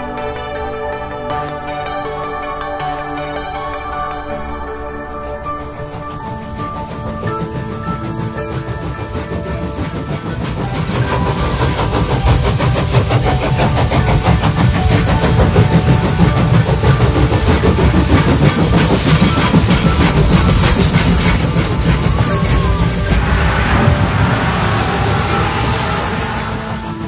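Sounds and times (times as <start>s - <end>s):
tractor engine running: 5.7s - 27.0s
carriages rolling over road: 5.8s - 27.0s.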